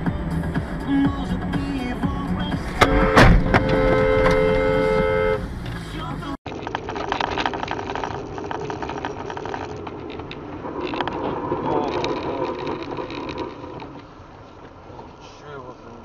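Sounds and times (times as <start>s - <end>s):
car road and engine noise: 0.0s - 16.0s
snow crackles under tyres: 6.5s - 16.0s.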